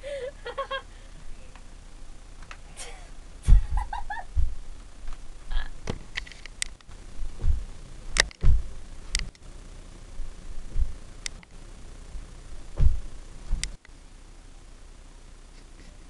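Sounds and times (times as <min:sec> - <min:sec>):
dull thuds on wooden floor: 0:03.5 - 0:04.6, 0:07.3 - 0:07.8, 0:08.4 - 0:08.8, 0:10.7 - 0:11.0, 0:12.7 - 0:13.7
sharp clicks and knocks: 0:08.2 - 0:09.4.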